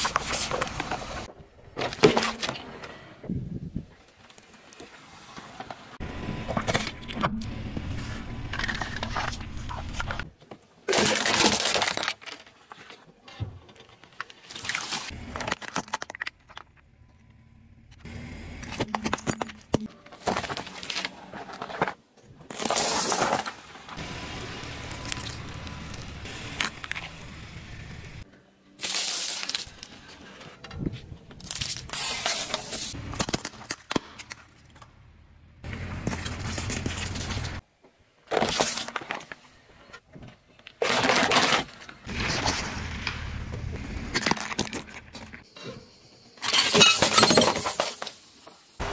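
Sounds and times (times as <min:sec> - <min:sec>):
plastic and candy crunching: 0:08.4 - 0:13.0
low tyre rumble: 0:24.0 - 0:28.2.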